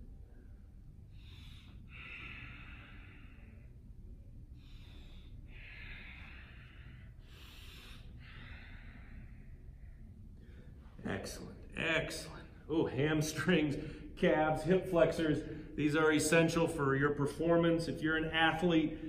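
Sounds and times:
man breathing deeply: 0.0 - 11.0, 13.7 - 14.2
low room hum: 0.0 - 19.0.

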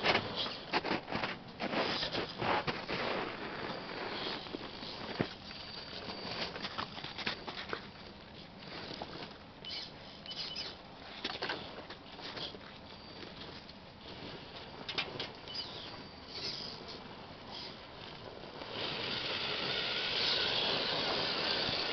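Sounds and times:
tyres crunching on snow: 0.0 - 9.4
faint high motor whine: 0.0 - 21.9.

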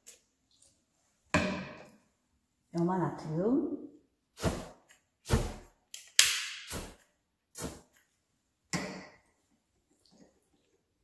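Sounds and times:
spray bottle hissing bursts: 6.6 - 7.0, 7.6 - 7.9.

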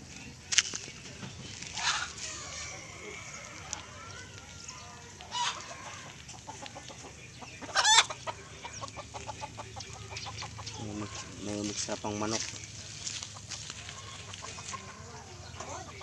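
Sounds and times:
chickens clucking: 0.0 - 16.0
chicken squawk: 1.7 - 6.8, 7.6 - 11.4.

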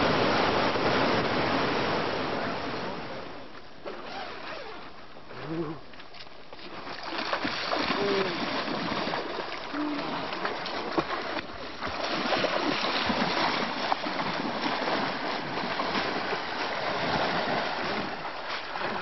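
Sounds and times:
people wading and splashing in water: 0.0 - 19.0
swimming strokes splashing: 3.8 - 19.0.

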